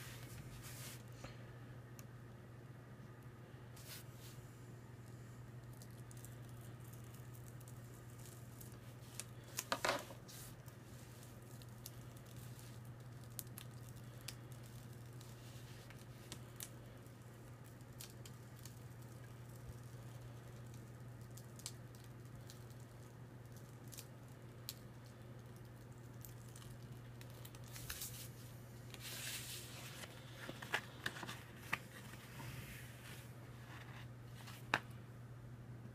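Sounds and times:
vinyl peeling crackles: 3.8s - 4.4s, 5.6s - 34.9s
vinyl sheet tearing rustle: 27.7s - 34.7s.

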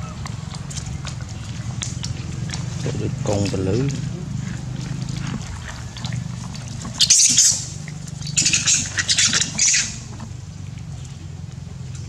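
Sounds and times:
steady low hum: 0.0s - 12.0s
macaques screeching: 7.0s - 10.1s.

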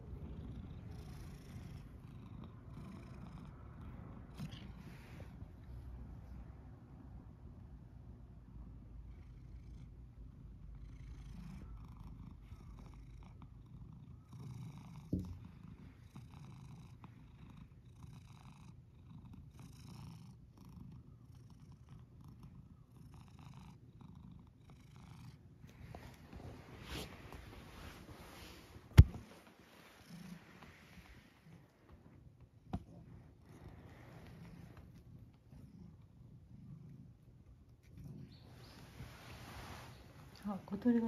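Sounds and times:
cat purring: 0.0s - 41.0s
thump: 15.1s - 15.4s, 29.0s - 29.2s.

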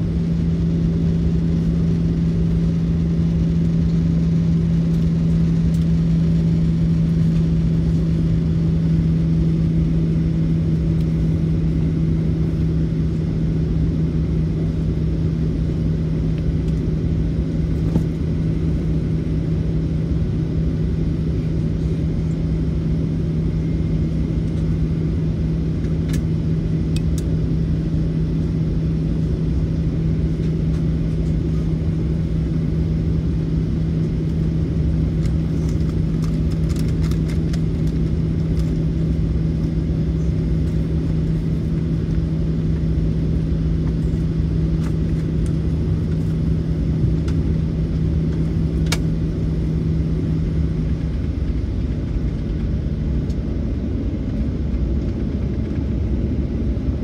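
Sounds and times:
jet engines humming: 0.0s - 57.0s.

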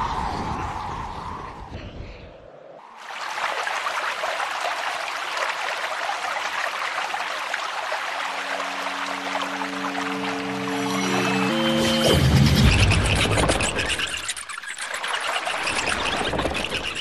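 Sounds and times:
sustained music notes: 8.2s - 13.1s.

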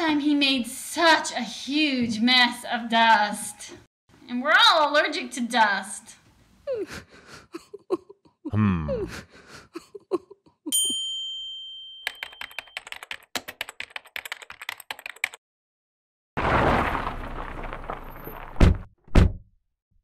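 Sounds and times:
bright bell ding: 10.8s - 12.7s
fast keyboard typing: 12.1s - 15.4s.

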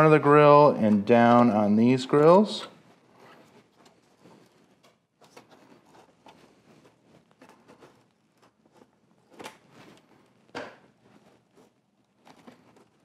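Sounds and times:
plastic clicking and scraping: 3.1s - 13.0s.

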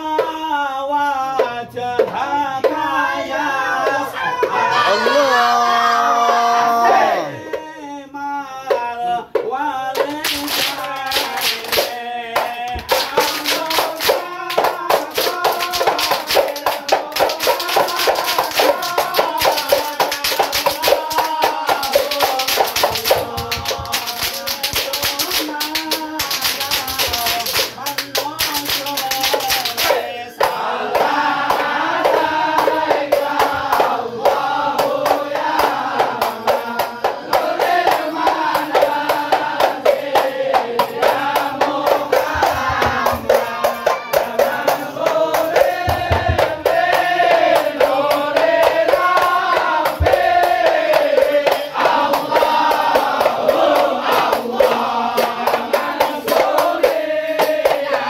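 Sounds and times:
group of men singing: 0.0s - 58.0s
rhythmic hand clapping: 0.0s - 58.0s
frame drums: 11.9s - 58.0s.

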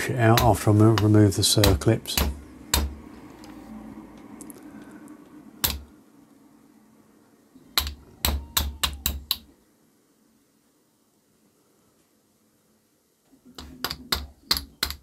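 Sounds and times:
small hammer tapping metal: 0.3s - 3.0s, 5.6s - 5.9s, 7.8s - 9.5s, 13.5s - 15.0s.

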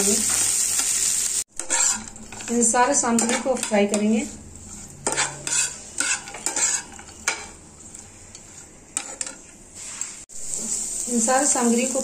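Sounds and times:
oil sizzling: 0.0s - 12.0s
metal spatula scraping pan: 1.6s - 10.8s.

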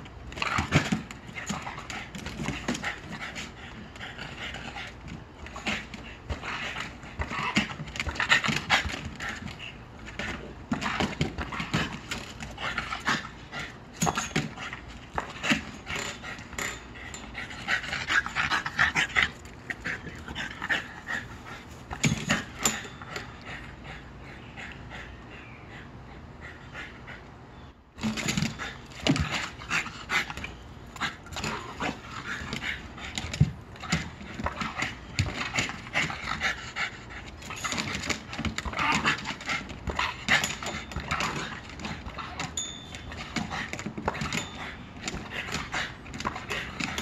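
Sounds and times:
dog panting: 14.6s - 27.5s.

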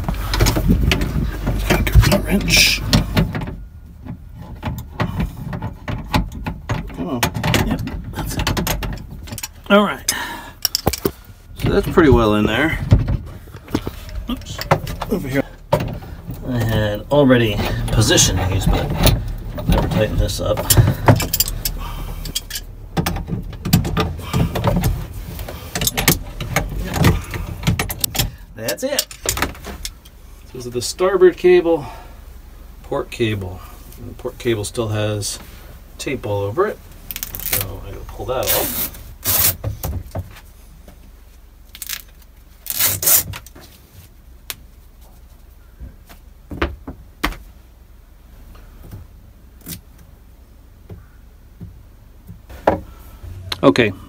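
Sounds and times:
adhesive tape ripping: 37.1s - 37.7s, 38.4s - 39.6s, 41.8s - 43.4s.

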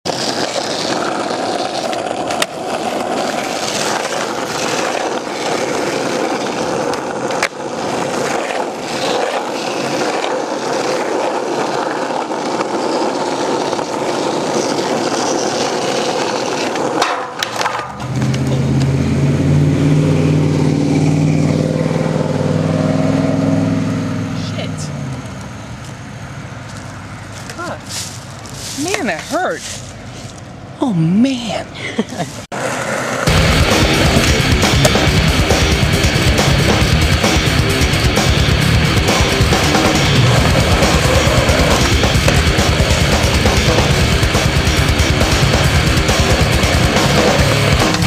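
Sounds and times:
skateboard rolling on asphalt: 0.0s - 30.8s, 32.3s - 48.0s
skateboard clacks: 0.1s - 18.9s, 32.6s - 48.0s.

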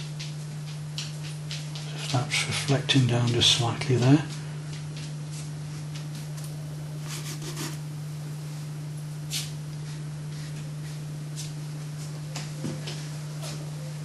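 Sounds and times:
paintbrush scratching on paper: 7.1s - 7.8s.

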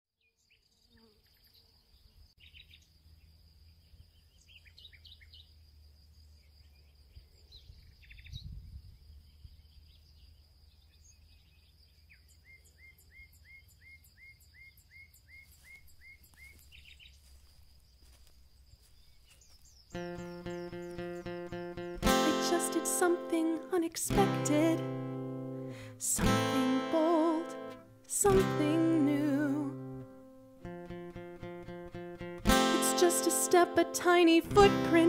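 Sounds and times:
birds chirping: 0.2s - 23.7s.

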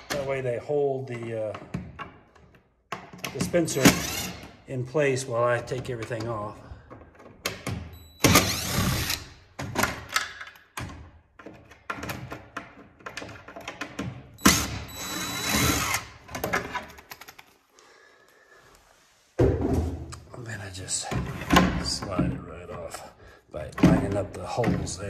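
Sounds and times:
impact driver whining: 8.2s - 9.4s, 14.4s - 16.2s.

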